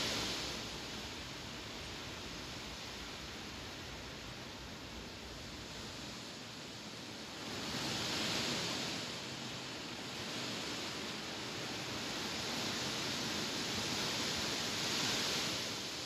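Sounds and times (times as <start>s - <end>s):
wind rustling tall grass: 0.0s - 16.0s.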